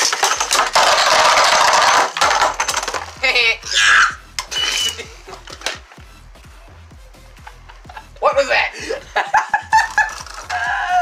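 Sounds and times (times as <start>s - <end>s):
spinning tops clacking: 0.0s - 3.2s, 9.7s - 10.6s
spinning tops whirring: 9.7s - 10.8s.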